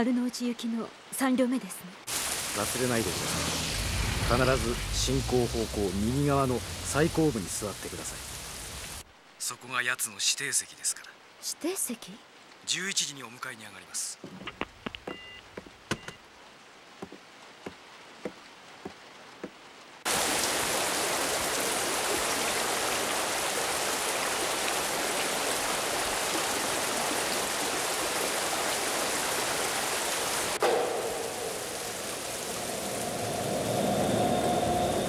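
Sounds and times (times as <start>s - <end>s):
heavy rain falling: 2.1s - 9.5s, 15.6s - 35.0s.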